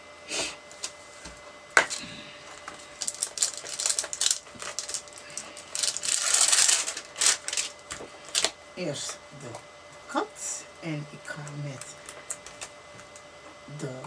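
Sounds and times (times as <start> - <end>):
plastic sleeve crinkling: 1.9 - 8.6.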